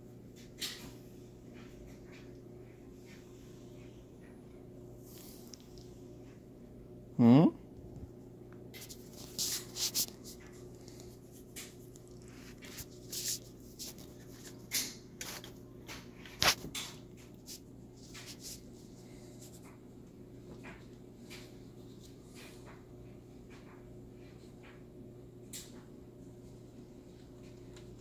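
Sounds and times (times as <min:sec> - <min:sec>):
steady low hum: 0:00.0 - 0:28.0
cat fur rubbing microphone: 0:08.8 - 0:14.6.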